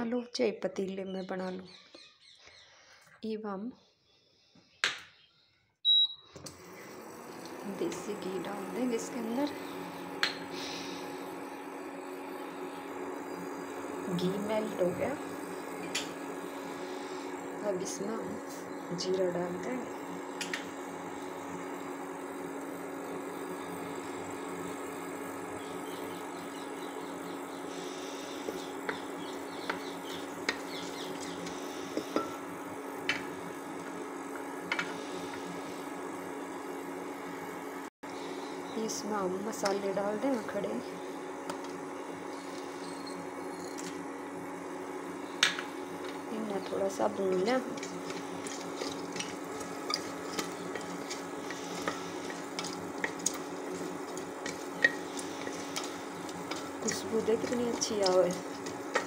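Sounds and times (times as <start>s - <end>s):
steady hum: 7.5s - 59.0s
seeds crackling in hot fat: 7.8s - 35.9s, 45.0s - 59.0s
wooden spatula stirring and tapping pot: 46.9s - 59.0s.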